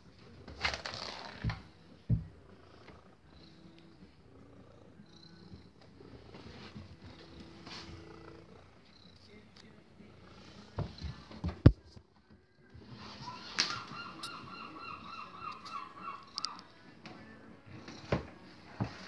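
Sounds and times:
cat purring: 0:00.0 - 0:11.7, 0:16.4 - 0:19.0.

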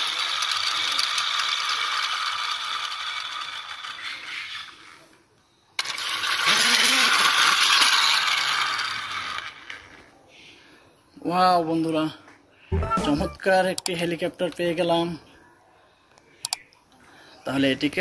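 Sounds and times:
toy helicopter rattling and whirring: 0:00.0 - 0:10.1.

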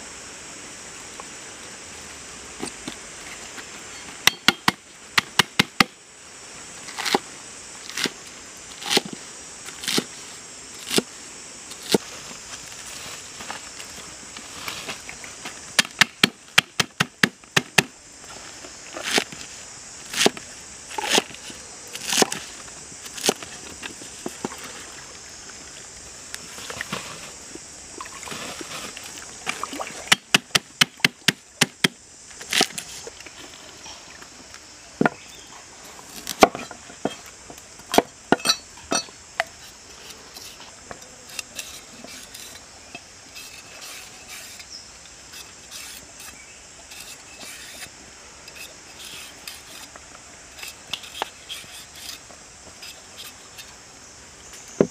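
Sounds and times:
steady high hiss: 0:00.0 - 0:54.9
cleaver chopping on wooden board: 0:04.3 - 0:05.9.

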